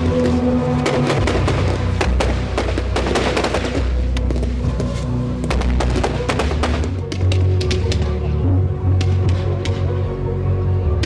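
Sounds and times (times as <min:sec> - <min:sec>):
fireworks bangs and crackles: 0:00.0 - 0:08.2.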